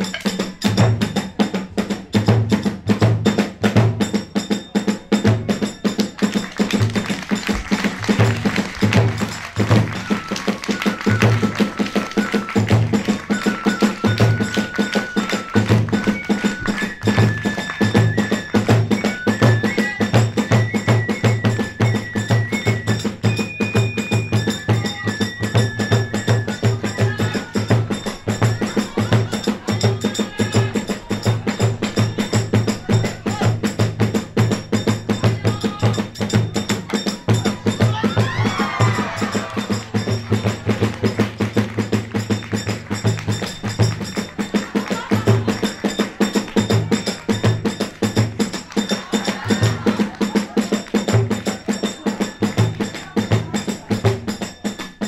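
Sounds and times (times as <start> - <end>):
hand cymbals and drum rims: 0.0 - 55.0
taiko drum beating: 0.0 - 55.0
high flute-like melody: 7.5 - 31.1.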